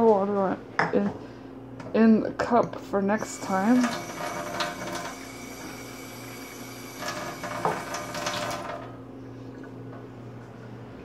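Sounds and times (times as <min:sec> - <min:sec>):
water pouring into cup: 0:03.4 - 0:09.8.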